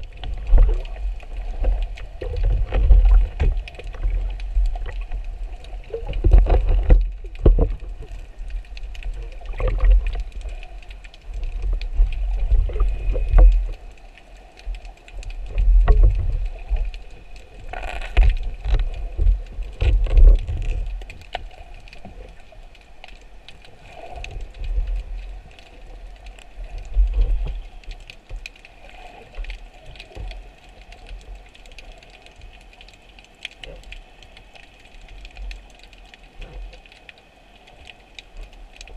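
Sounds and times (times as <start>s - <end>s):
muffled underwater thumps and knocks: 0.0s - 5.1s, 5.9s - 8.1s, 9.4s - 10.2s, 15.5s - 16.5s, 17.7s - 21.2s
small clicks: 0.2s - 38.9s.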